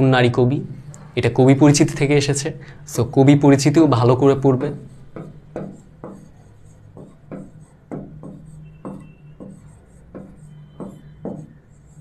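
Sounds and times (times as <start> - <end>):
stylus tapping and scraping screen: 3.8 - 12.0.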